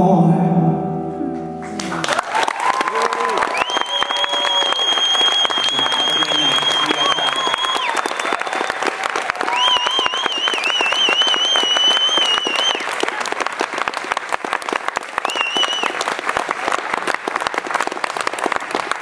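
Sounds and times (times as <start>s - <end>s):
audience applauding: 1.7s - 19.0s
shrill wavering whistle: 3.4s - 8.9s, 9.5s - 12.8s, 15.3s - 16.0s.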